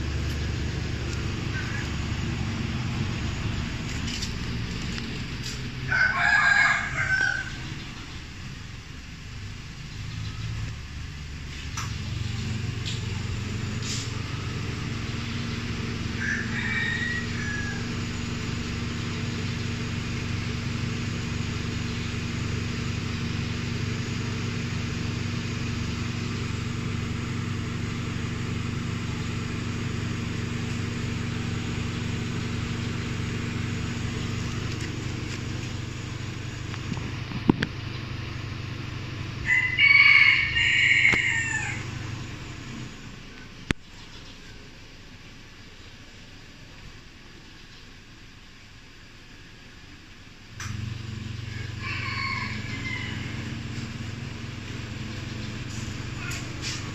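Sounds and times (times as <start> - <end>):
steady low hum: 0.0 - 16.6, 17.2 - 39.8
rooster crowing: 5.9 - 7.7, 16.0 - 18.2, 39.4 - 42.2, 51.4 - 54.6.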